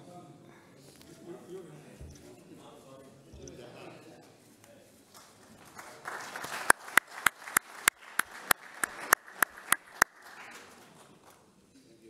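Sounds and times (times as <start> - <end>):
applause in a hall: 5.1 - 11.6.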